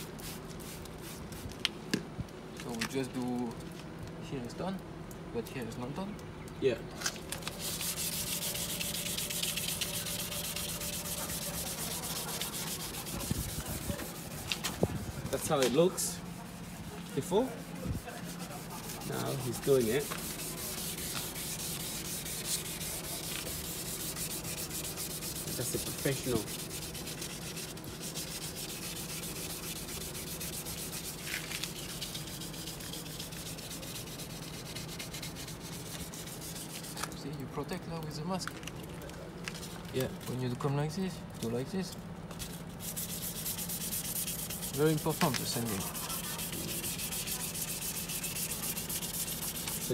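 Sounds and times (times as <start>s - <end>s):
sandpaper sanding plastic: 7.4s - 37.2s, 42.3s - 49.9s.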